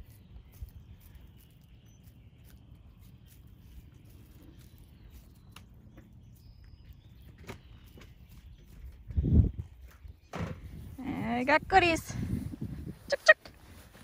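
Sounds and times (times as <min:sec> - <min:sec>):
chickens pecking and scratching: 0:00.0 - 0:11.0.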